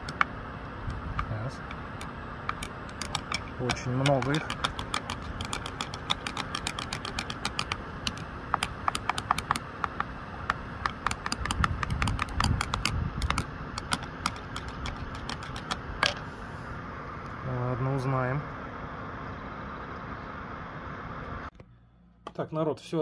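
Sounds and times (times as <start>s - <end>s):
rapid sharp clicks: 0.9s - 16.2s.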